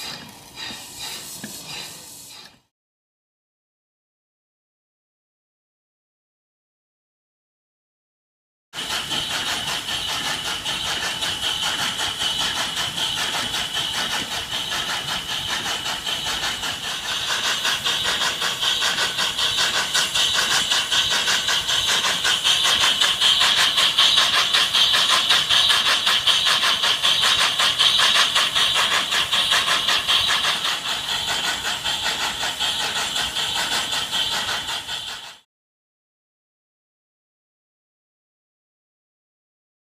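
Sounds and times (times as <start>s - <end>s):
high steam hiss: 0.0s - 2.7s, 8.8s - 35.4s
steam pump clattering: 0.0s - 2.7s, 8.8s - 35.4s.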